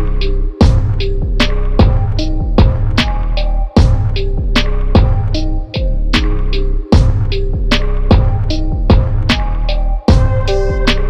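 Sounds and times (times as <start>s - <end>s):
music with drums and bass: 0.0s - 11.0s.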